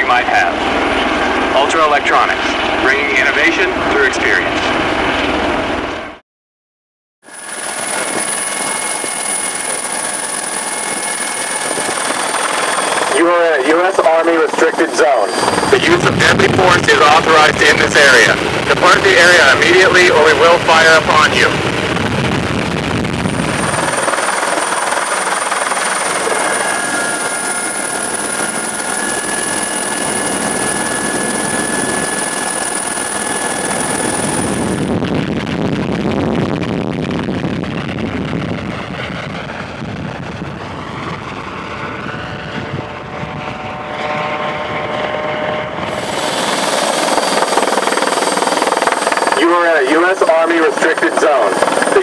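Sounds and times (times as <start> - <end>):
helicopter rotor and engine noise: 0.0 - 6.2, 7.2 - 52.0
high steady whine: 7.3 - 41.7, 42.4 - 52.0
steady tones: 7.4 - 22.0, 22.6 - 34.9.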